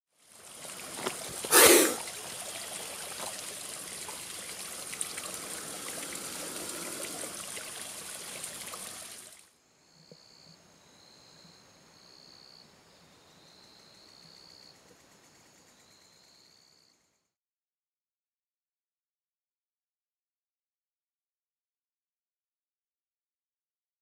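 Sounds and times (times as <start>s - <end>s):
stream rushing: 0.5s - 9.3s.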